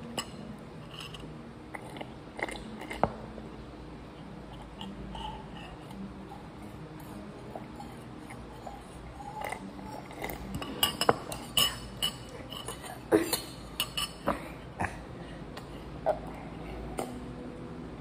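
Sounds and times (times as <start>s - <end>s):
spoon clinking against ceramic bowl: 8.8s - 14.3s.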